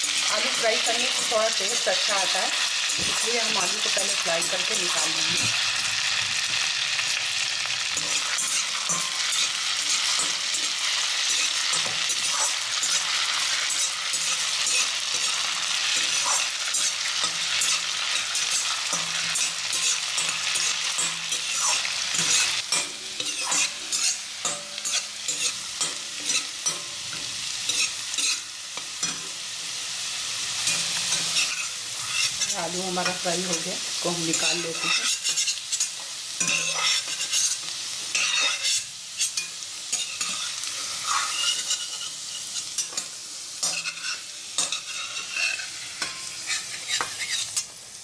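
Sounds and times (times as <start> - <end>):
potatoes sizzling in oil: 0.0 - 48.0
metal spoon scraping and knocking pan: 6.4 - 29.4, 34.3 - 47.7.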